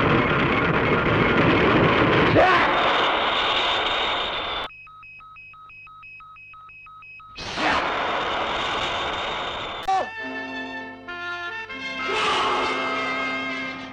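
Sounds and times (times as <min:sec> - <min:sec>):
electronic beeping: 0:04.2 - 0:07.4.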